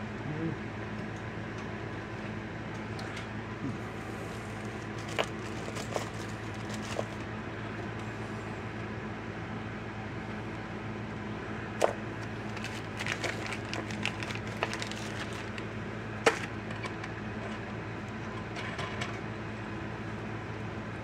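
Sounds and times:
steady low hum: 0.0s - 21.0s
plastic bag rustling: 4.4s - 7.3s, 12.2s - 15.7s.

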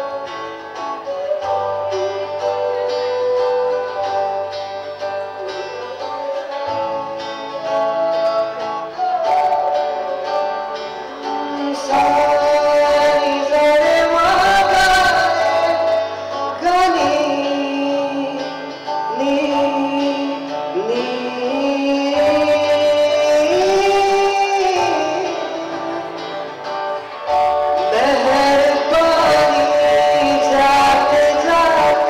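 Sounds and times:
acoustic guitar: 0.0s - 32.0s
man singing: 11.2s - 27.0s, 27.8s - 32.0s.

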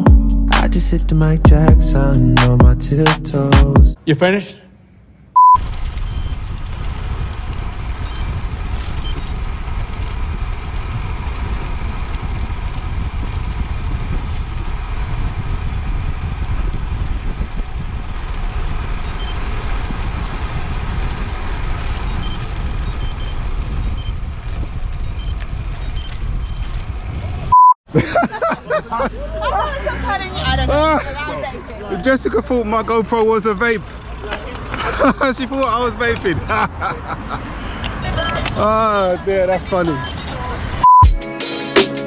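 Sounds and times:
bicycle road noise: 4.8s - 40.9s
short high beep: 5.4s - 6.4s, 40.0s - 41.2s
wind rush on microphone: 5.9s - 27.5s.

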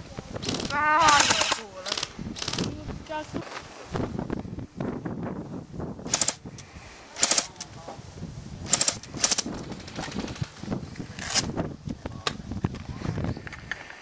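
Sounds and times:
airsoft rifle firing bursts: 0.4s - 2.7s, 6.1s - 6.4s, 7.2s - 7.6s, 8.7s - 10.5s.

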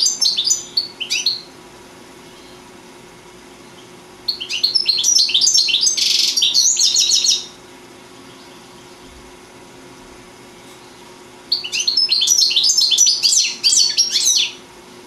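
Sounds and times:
goldfinch twittering: 0.0s - 1.5s, 3.7s - 7.6s, 10.8s - 14.6s.

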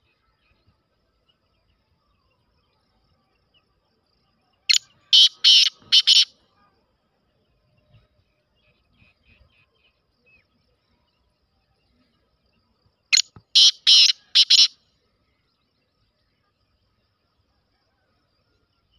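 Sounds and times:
faint bird chirps: 0.0s - 18.9s
francolin harsh calls: 4.7s - 6.4s, 13.1s - 14.8s.

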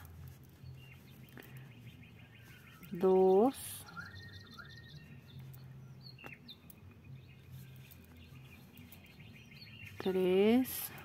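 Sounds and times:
faint bird chirps: 0.2s - 11.0s.

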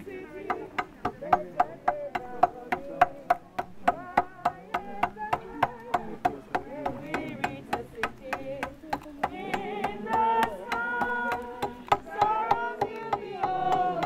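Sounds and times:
group singing a hymn: 0.0s - 14.0s
rhythmic hand clapping: 3.0s - 14.0s.

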